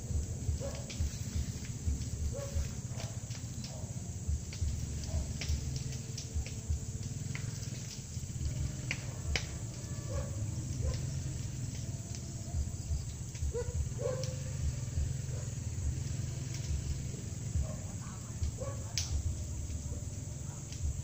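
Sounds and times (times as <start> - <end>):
low thumps: 0.0 - 21.0
steady low hum: 0.0 - 21.0
faint clicks: 0.2 - 21.0
chirping animal calls: 8.5 - 20.8.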